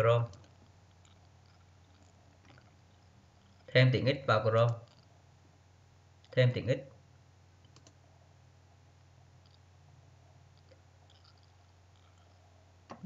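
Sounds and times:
low steady hum: 0.0s - 13.0s
faint mouse clicks: 7.6s - 8.0s.

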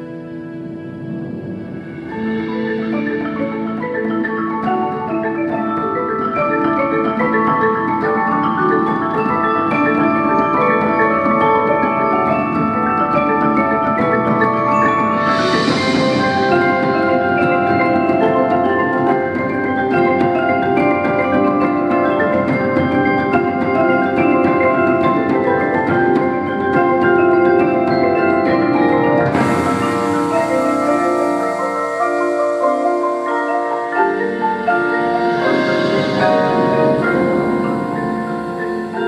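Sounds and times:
marimbas playing fast runs: 0.0s - 39.0s
bright hissing wash: 29.3s - 39.0s.

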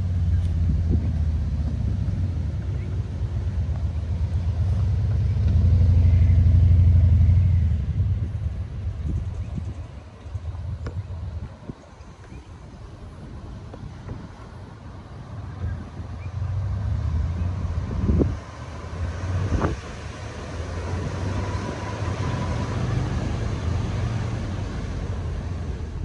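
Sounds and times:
vehicle rumble: 0.0s - 26.0s.

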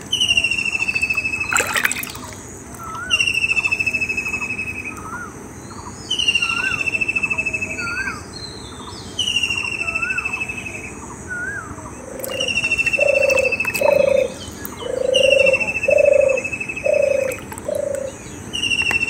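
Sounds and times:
soft bird chirps: 0.0s - 19.0s
bird trilled call: 0.1s - 19.0s
splash of muddy water: 1.5s - 2.4s.

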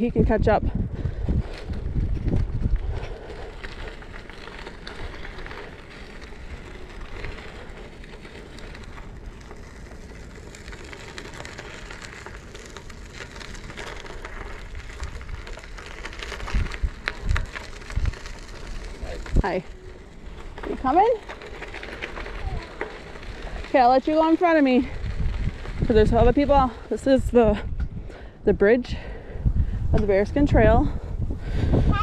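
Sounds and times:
bike tyres rolling on gravel: 0.0s - 32.0s.

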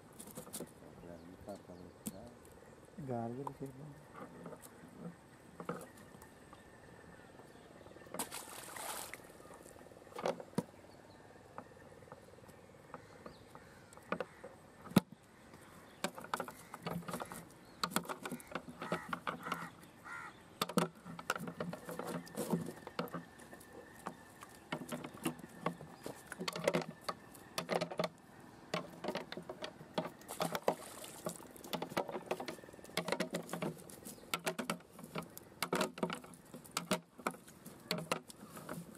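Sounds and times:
net clicks taps and rustles: 11.6s - 19.9s, 20.6s - 38.9s.

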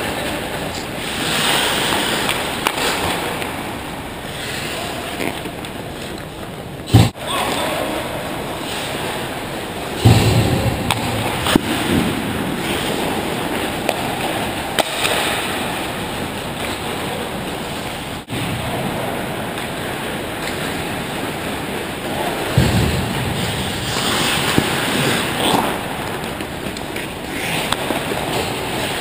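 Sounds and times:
skate blades scraping on ice: 0.1s - 3.4s, 23.4s - 29.0s.

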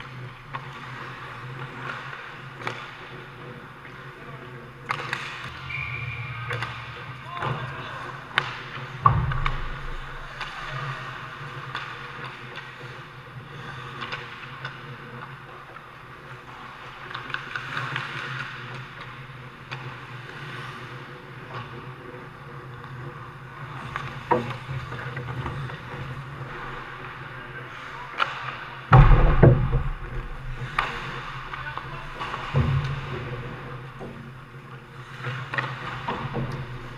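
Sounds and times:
skate blades scraping ice: 0.0s - 28.9s, 30.4s - 36.9s
sticks and puck clacking: 0.0s - 36.9s
steady low hum: 5.3s - 11.7s
heavy thump: 9.0s - 10.4s, 28.9s - 31.6s.

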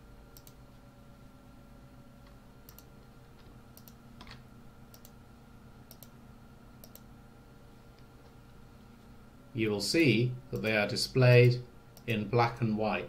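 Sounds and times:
low steady hum: 0.0s - 13.0s
computer mouse clicks: 0.3s - 0.6s, 2.2s - 2.9s, 3.7s - 5.2s, 5.9s - 6.2s, 6.8s - 7.1s.

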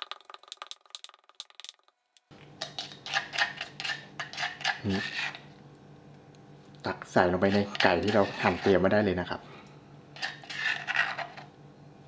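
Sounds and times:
spoon scraping stone bowl: 2.6s - 5.5s, 7.4s - 8.9s, 10.2s - 11.5s.

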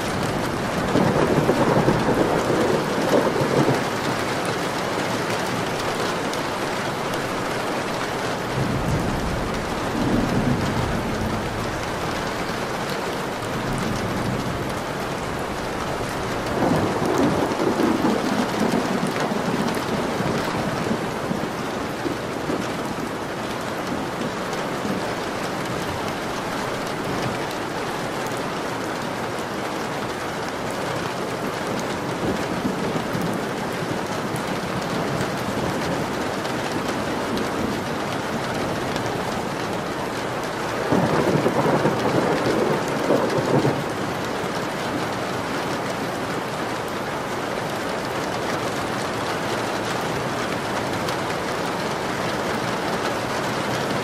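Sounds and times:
rolling thunder: 0.0s - 6.3s, 8.2s - 27.3s, 40.9s - 44.3s
steady rain falling: 0.0s - 54.0s.

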